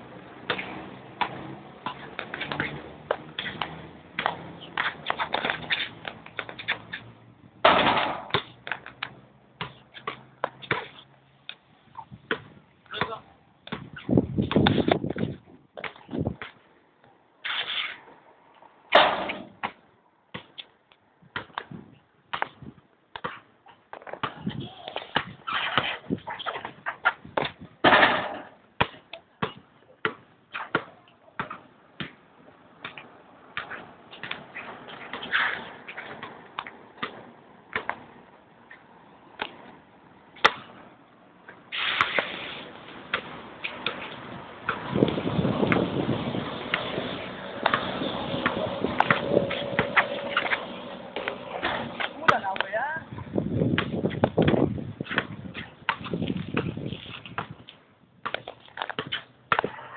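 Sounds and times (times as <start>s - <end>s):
basketball bouncing on hard court: 12.3s - 16.5s, 47.6s - 50.6s, 53.6s - 57.6s, 58.2s - 59.8s
loud rush of noise: 41.8s - 52.3s.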